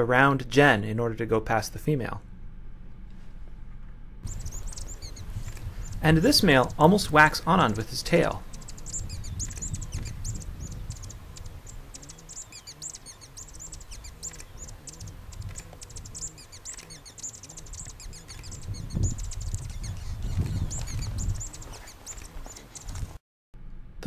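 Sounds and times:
low rumble: 0:00.0 - 0:12.4
bird chirping high notes: 0:04.3 - 0:06.7, 0:07.7 - 0:22.8.

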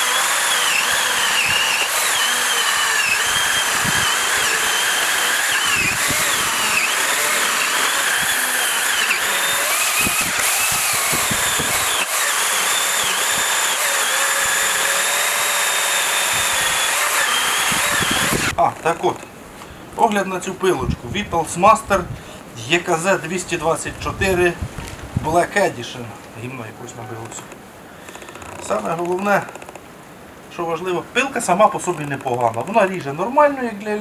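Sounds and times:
electric chainsaw cutting log: 0:00.0 - 0:18.6.

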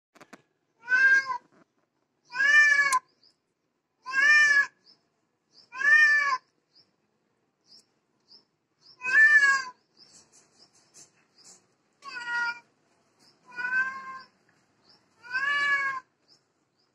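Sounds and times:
cat meowing: 0:00.8 - 0:01.4, 0:02.3 - 0:03.0, 0:04.0 - 0:04.8, 0:05.7 - 0:06.4, 0:09.0 - 0:09.8, 0:12.0 - 0:12.7, 0:13.5 - 0:14.3, 0:15.2 - 0:16.1.

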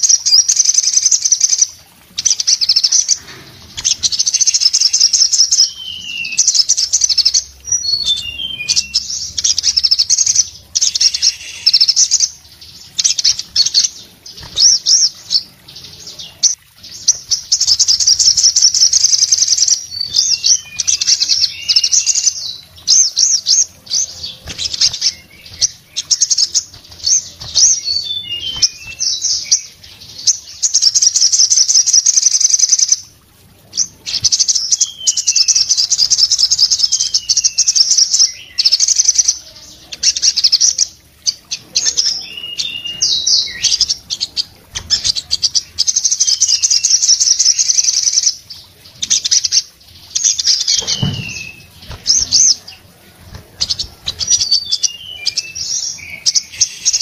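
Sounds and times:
sunbird trilling song: 0:00.0 - 0:57.0
wings fluttering: 0:14.4 - 0:15.0, 0:24.2 - 0:29.2, 0:50.7 - 0:54.7.

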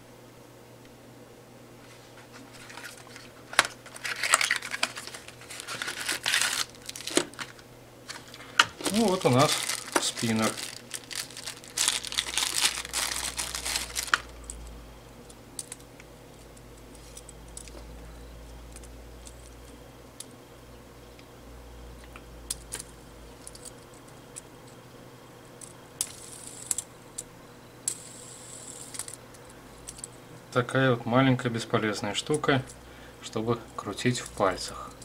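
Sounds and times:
handling plastic spinner: 0:02.4 - 0:14.3
plastic wrapping crinkling: 0:02.5 - 0:14.5.

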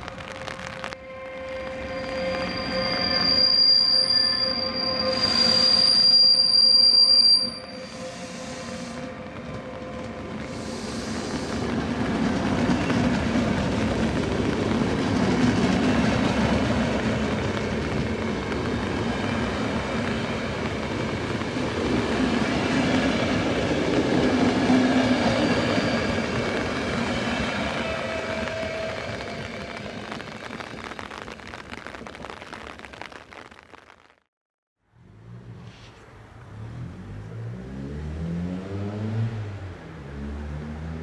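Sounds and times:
locomotive high whine: 0:00.0 - 0:12.1
train wheels rolling rumble: 0:08.0 - 0:31.4.

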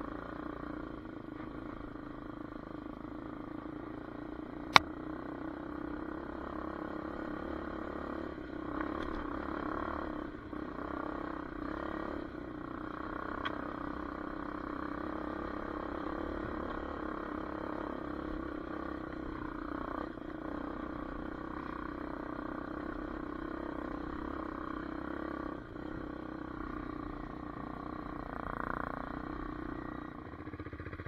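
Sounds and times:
dirt bike engine running: 0:00.0 - 0:31.0.

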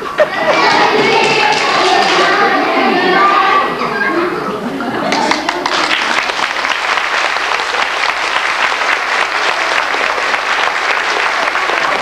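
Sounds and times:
children singing: 0:00.0 - 0:05.4
audience applauding: 0:05.1 - 0:12.0.

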